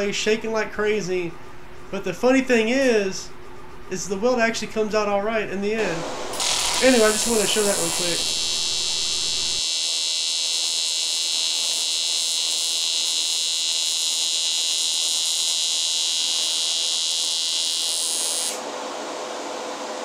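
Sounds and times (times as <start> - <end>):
welding arc buzzing hiss: 5.8 - 19.1.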